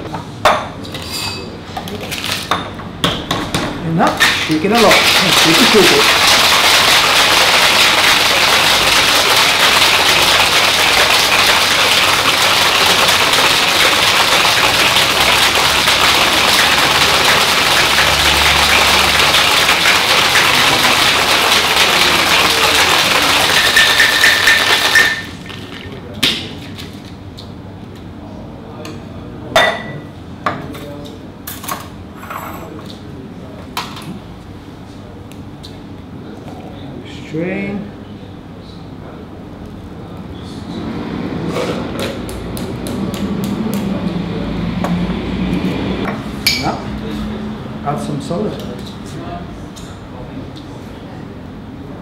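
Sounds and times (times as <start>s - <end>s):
shaker tins knocking and clinking: 4.1s - 27.1s
ice rattling in cocktail shaker: 4.2s - 26.0s.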